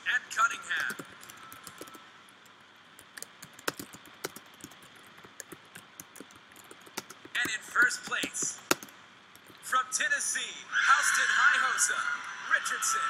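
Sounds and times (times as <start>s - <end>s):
keyboard typing: 0.7s - 9.6s.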